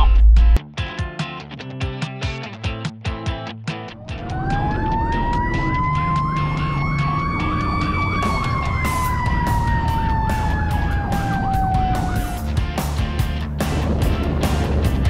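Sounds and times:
chirping siren tone: 0:04.0 - 0:12.5
fire engine siren wailing: 0:04.0 - 0:12.7
truck engine rumble: 0:04.0 - 0:15.0.

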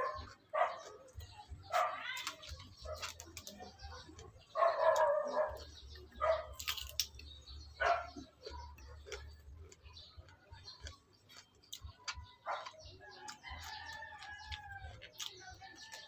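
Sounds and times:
dog barking: 0:00.0 - 0:01.1, 0:01.7 - 0:02.1, 0:02.8 - 0:06.7, 0:07.8 - 0:09.2, 0:12.4 - 0:12.8
crunching bites into cucumber: 0:06.4 - 0:16.0.

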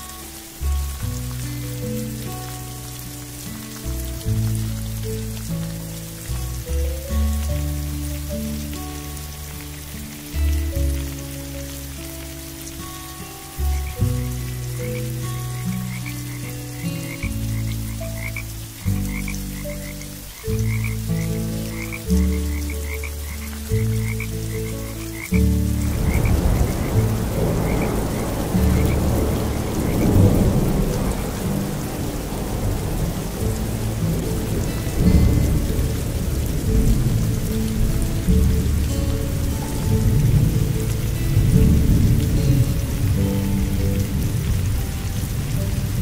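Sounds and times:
steady rain: 0:00.0 - 0:46.0
frogs chirping: 0:07.8 - 0:36.6
deep frog croaks: 0:13.6 - 0:32.3
low rumbling thunder: 0:25.7 - 0:46.0.

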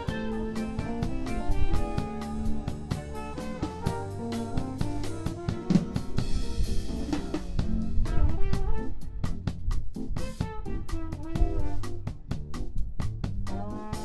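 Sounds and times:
band sustained notes: 0:00.0 - 0:08.8
snare and bass drum hits: 0:00.0 - 0:14.0.

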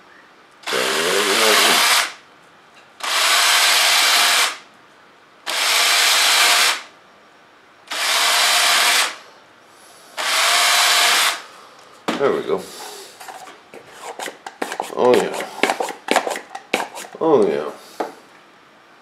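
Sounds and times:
cordless drill running: 0:00.6 - 0:02.2, 0:03.0 - 0:04.6, 0:05.5 - 0:06.9, 0:07.9 - 0:09.2, 0:10.2 - 0:11.4.

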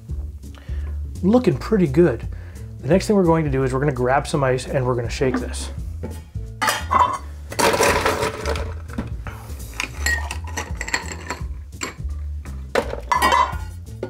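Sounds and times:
ice cubes rattling and clinking: 0:06.8 - 0:08.9, 0:09.8 - 0:12.0, 0:12.8 - 0:13.7.

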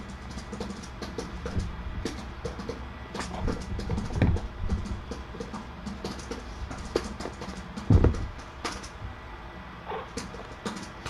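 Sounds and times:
dull thump: 0:07.9 - 0:08.4.

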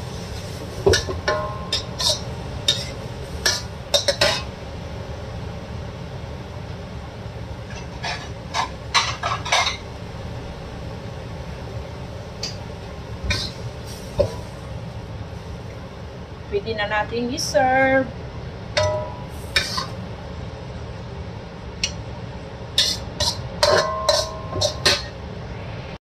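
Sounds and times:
low background hum: 0:00.0 - 0:26.0
metal spatula scraping a wok: 0:00.1 - 0:04.5, 0:07.6 - 0:09.8, 0:13.2 - 0:14.5, 0:19.3 - 0:20.0, 0:22.8 - 0:25.2.

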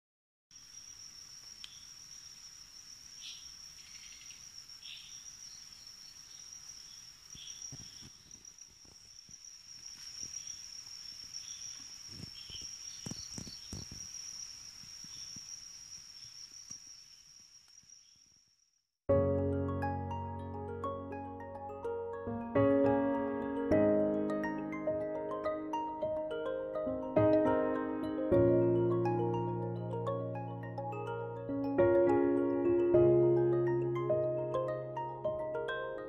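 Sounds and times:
insect high-pitched trill: 0:00.5 - 0:18.9
insects chirping: 0:00.5 - 0:19.0, 0:24.2 - 0:36.0.

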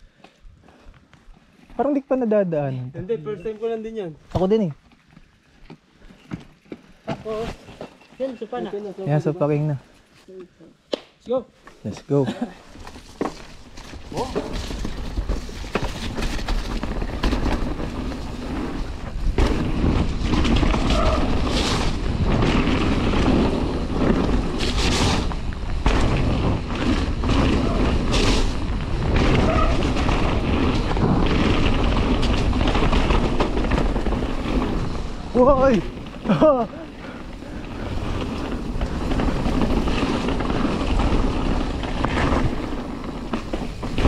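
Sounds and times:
tyre noise: 0:04.3 - 0:08.9, 0:12.4 - 0:44.0
bike rattling over bumps: 0:12.4 - 0:44.0
wind rushing over microphone: 0:14.2 - 0:44.0.

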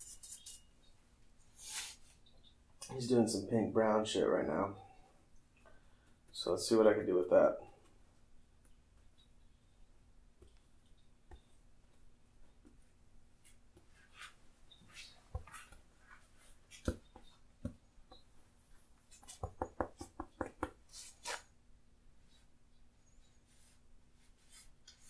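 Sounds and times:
painting tools tapping and scraping: 0:10.4 - 0:21.5.

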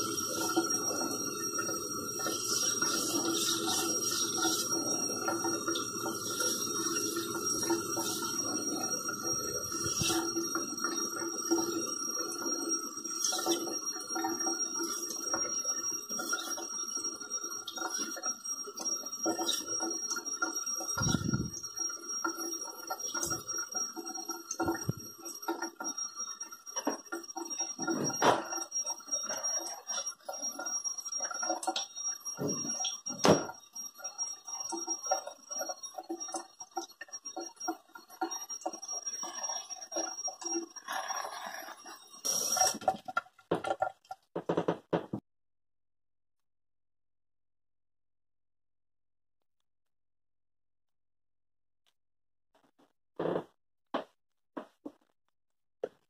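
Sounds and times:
tap water running into sink: 0:00.0 - 0:26.2, 0:26.8 - 0:33.6.

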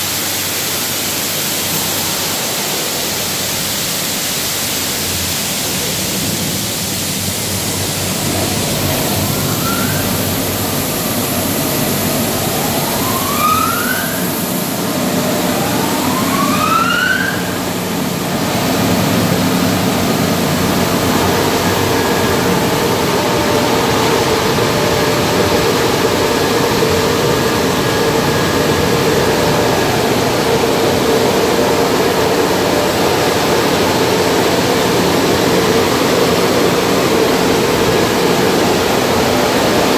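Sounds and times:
water spray hiss: 0:00.0 - 0:15.8
dryer blowers droning: 0:00.0 - 0:39.9
short rising whines: 0:07.5 - 0:33.0.

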